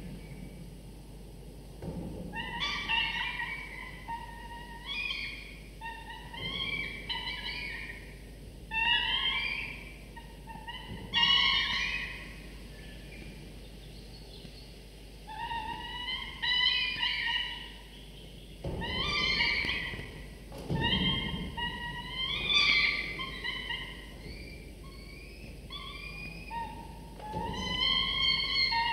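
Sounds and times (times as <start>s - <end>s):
falcon nestlings begging calls: 18.8s - 20.1s, 20.8s - 26.8s.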